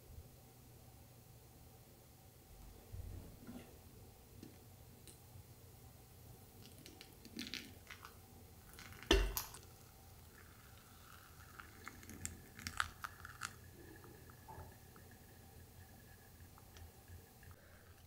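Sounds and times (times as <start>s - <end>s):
soft crackles of wet coffee grounds: 6.6s - 18.0s
hot water pouring onto coffee: 6.9s - 17.6s.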